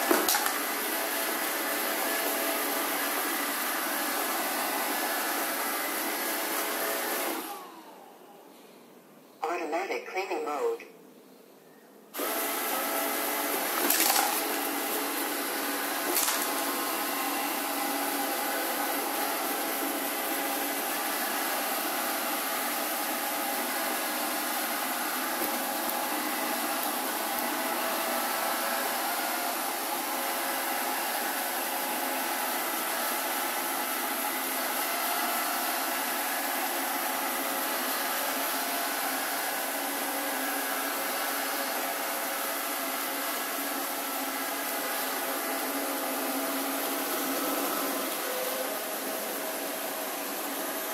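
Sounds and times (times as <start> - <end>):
robot vacuum whirring: 12.2 - 50.9.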